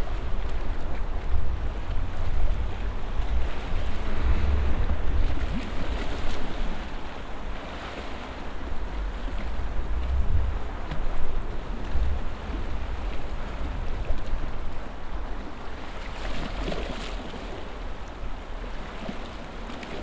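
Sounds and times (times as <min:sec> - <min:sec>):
steady rushing noise: 0:00.0 - 0:15.7
wind buffeting microphone: 0:00.0 - 0:19.2.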